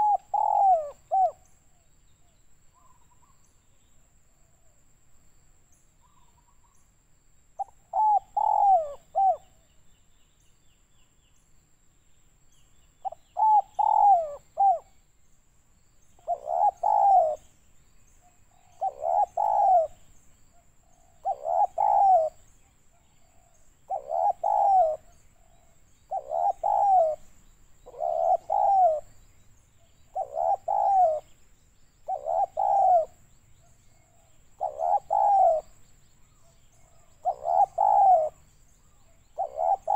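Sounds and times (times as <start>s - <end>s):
dove cooing: 0.0s - 1.4s, 7.6s - 9.6s, 13.0s - 14.9s, 16.2s - 17.5s, 18.5s - 20.1s, 20.9s - 22.4s, 23.2s - 29.2s, 30.1s - 31.4s, 32.0s - 33.2s, 34.1s - 35.8s, 36.8s - 38.4s, 39.3s - 39.9s.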